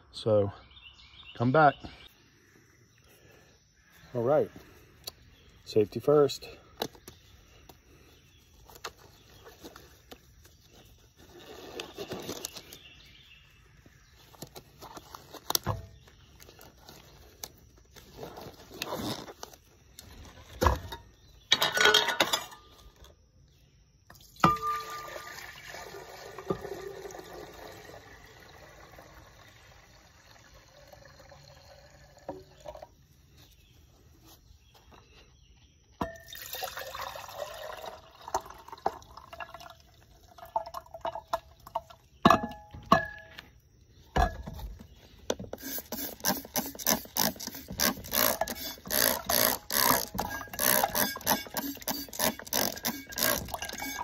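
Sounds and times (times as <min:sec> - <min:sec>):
liquid pouring into glass: 0:24.4 - 0:32.9, 0:36.2 - 0:41.8.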